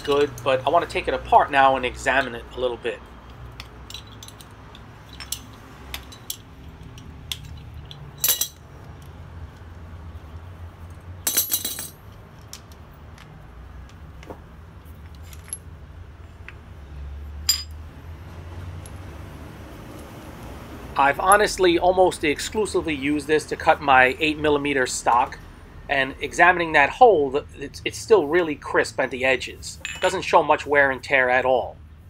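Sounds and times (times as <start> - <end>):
metal parts clinking: 0.0 - 0.5, 3.2 - 9.1, 11.2 - 13.3, 14.8 - 15.7, 17.4 - 17.8, 29.8 - 30.3.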